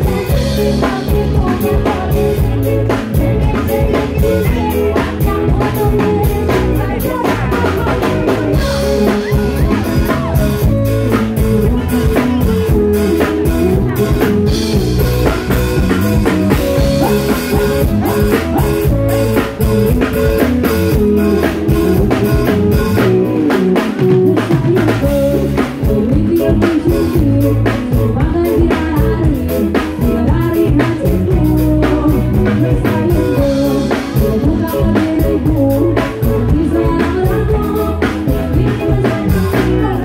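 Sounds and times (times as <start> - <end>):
woman singing into a microphone: 0.0 - 10.8, 24.3 - 40.0
drum kit steady beat: 0.0 - 40.0
electric guitar: 0.0 - 40.0.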